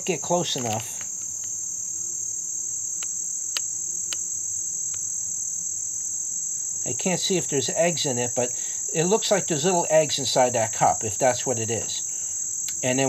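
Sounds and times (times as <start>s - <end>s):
insects trilling: 0.0s - 13.0s
faint ticks: 3.0s - 4.3s, 4.9s - 5.1s, 12.1s - 12.8s.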